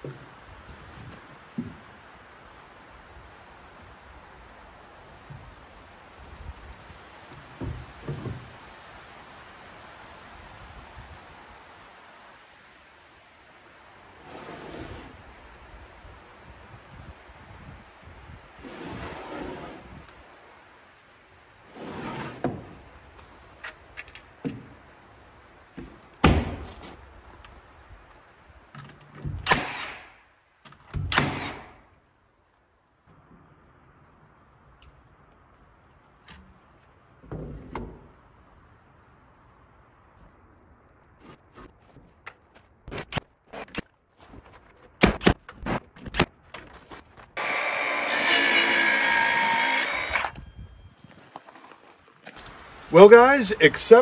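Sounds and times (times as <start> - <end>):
nailer firing into wood: 29.4 - 30.1, 30.9 - 31.8, 45.0 - 46.3
nail gun shots: 29.4 - 30.2, 31.0 - 31.8
power saw cutting wood: 47.4 - 50.4.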